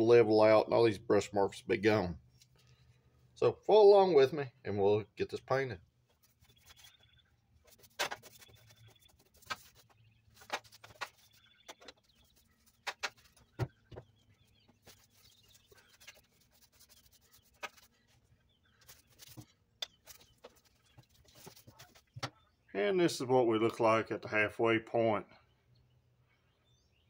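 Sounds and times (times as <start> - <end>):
brush dabbing and scraping paint: 5.5 - 22.2.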